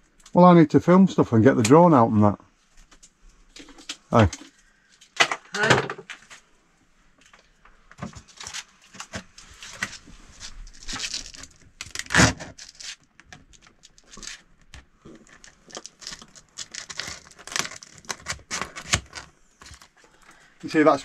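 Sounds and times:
tile sheets crinkling and rustling: 7.2s - 21.0s.

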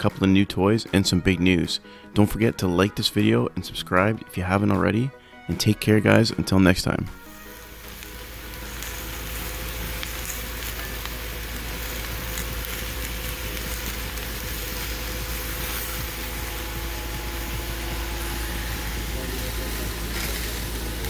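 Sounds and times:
food sizzling in a skillet: 7.2s - 21.0s.

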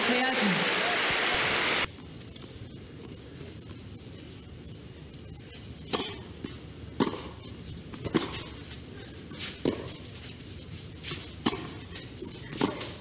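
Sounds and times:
racquets hitting tennis ball: 5.9s - 8.8s, 9.4s - 10.3s, 11.0s - 13.0s.

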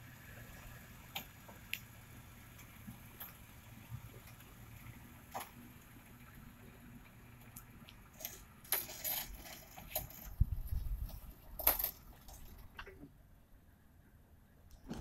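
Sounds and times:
metal clinks and rattles: 8.2s - 10.4s, 11.6s - 12.6s.

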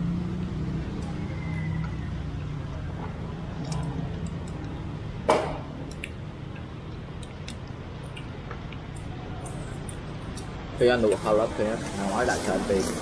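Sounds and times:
tableware knock: 5.3s - 5.7s.

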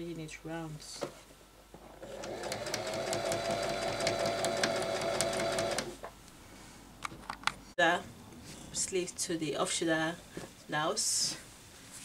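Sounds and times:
electric sewing machine stitching: 2.0s - 6.0s.

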